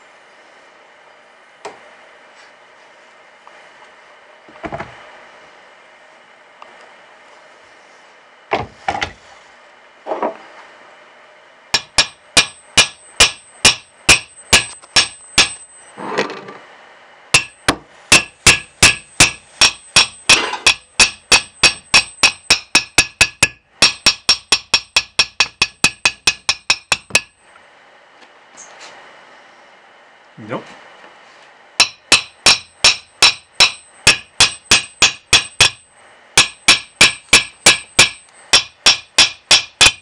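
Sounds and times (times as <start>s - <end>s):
hammer blows on metal: 11.7s - 15.7s, 17.4s - 27.4s, 31.8s - 40.0s.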